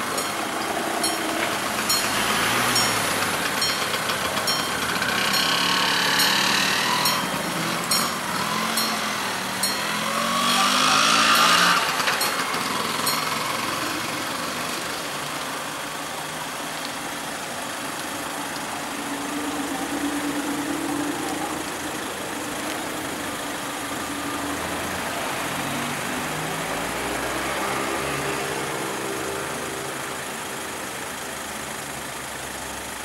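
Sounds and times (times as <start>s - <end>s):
level crossing warning bell: 0.0s - 14.4s
train engine passing: 0.0s - 25.6s.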